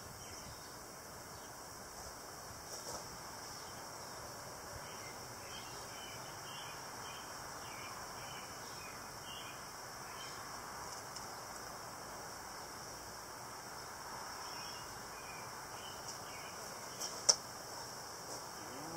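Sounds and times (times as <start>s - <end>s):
honeybees buzzing: 14.7s - 18.9s.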